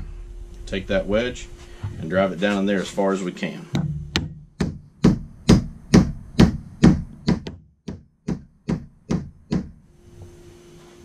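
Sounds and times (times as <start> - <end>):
mallet striking wooden wedge: 3.7 - 9.8.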